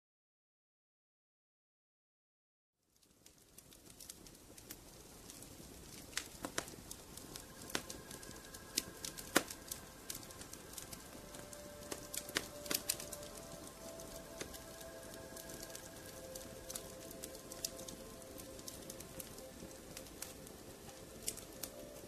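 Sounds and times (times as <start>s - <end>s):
faint held notes: 6.9s - 22.0s.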